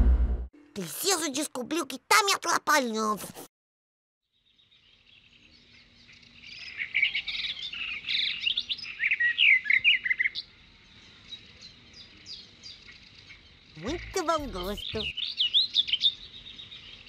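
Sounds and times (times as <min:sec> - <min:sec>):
birds chirping and trilling: 0:04.3 - 0:17.0.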